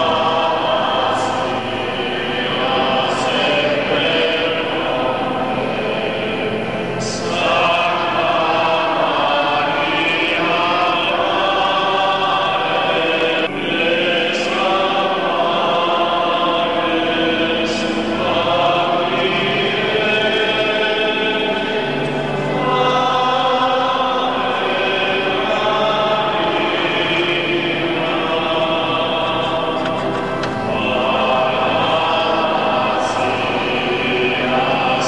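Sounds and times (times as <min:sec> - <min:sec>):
male choir singing: 0:00.0 - 0:35.0.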